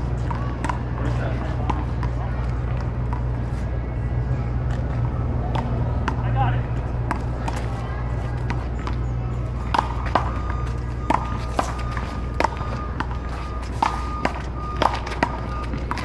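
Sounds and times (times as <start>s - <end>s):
ball bouncing: 0.0s - 3.4s, 4.7s - 16.0s
steady low hum: 0.0s - 16.0s
paddles hitting ball: 8.4s - 16.0s.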